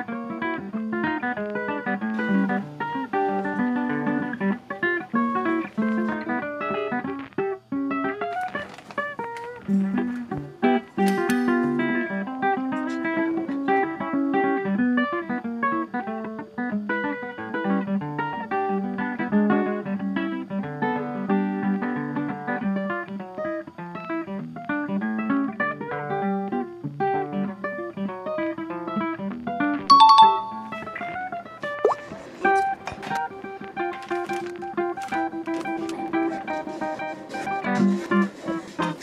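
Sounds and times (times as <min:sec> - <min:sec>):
plucked guitar notes: 0:00.0 - 0:07.2, 0:29.8 - 0:36.0.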